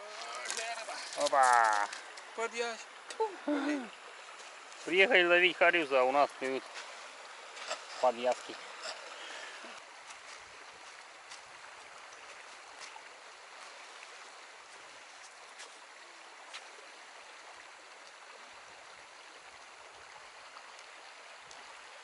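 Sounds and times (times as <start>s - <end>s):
river rushing over stones: 0.0s - 22.0s
faint ticks: 18.0s - 18.2s, 20.7s - 21.7s.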